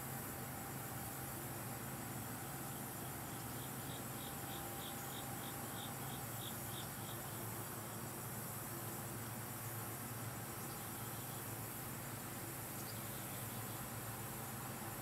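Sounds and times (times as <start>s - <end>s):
outdoor hiss: 0.0s - 15.0s
insect chirping: 2.4s - 14.6s.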